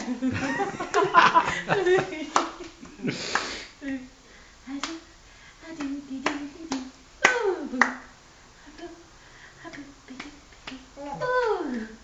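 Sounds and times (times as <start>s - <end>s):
person clapping hands: 0.8s - 1.6s, 2.3s - 3.6s
playful vocal sounds: 9.6s - 12.0s.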